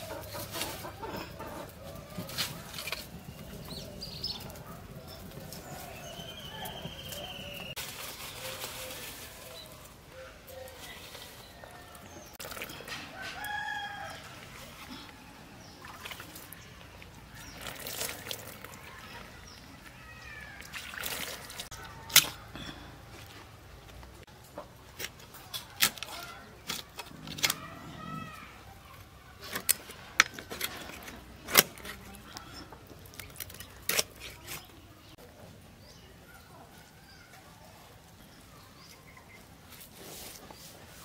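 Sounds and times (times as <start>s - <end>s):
water splashing and pouring: 12.3s - 13.0s, 15.7s - 19.3s, 20.3s - 21.8s
blade cracking through carcass: 33.2s - 34.7s.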